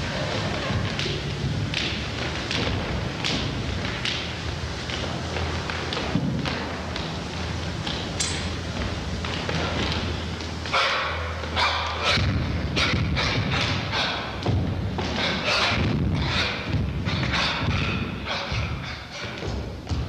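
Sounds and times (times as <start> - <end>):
thuds: 12.2 - 20.0.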